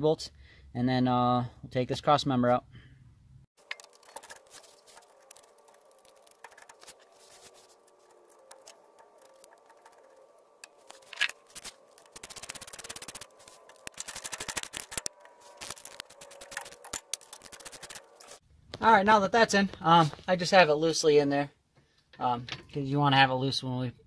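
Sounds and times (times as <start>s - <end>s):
socket ratchet clicking: 7.9s - 15.3s.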